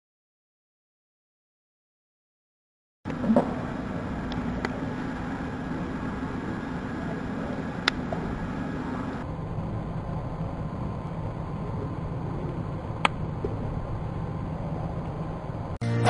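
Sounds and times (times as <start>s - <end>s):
low rumbling background noise: 3.1s - 15.8s.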